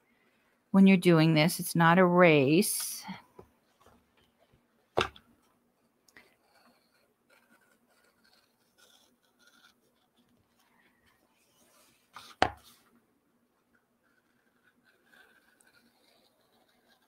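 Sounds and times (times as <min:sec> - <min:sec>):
knife scratching paper: 0:06.5 - 0:10.3, 0:14.2 - 0:17.0.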